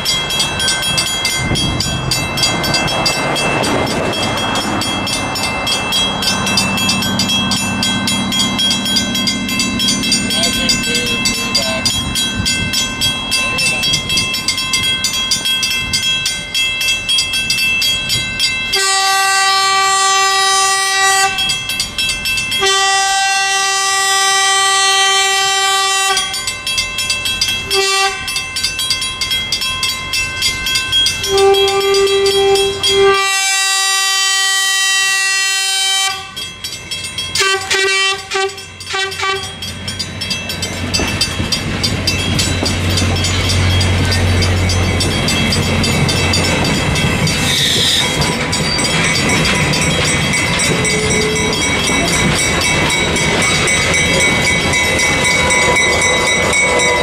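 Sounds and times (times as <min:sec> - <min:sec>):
crossing bell ringing: 0:00.0 - 0:57.0
train cars rumbling on rails: 0:00.0 - 0:57.0
train air horn blasts: 0:18.8 - 0:21.4, 0:22.6 - 0:26.4, 0:27.7 - 0:28.3, 0:31.2 - 0:36.4, 0:37.4 - 0:39.6.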